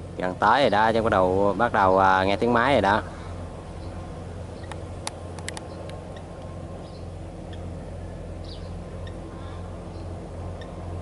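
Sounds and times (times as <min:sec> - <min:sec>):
distant tractor diesel engine: 0:00.0 - 0:11.0.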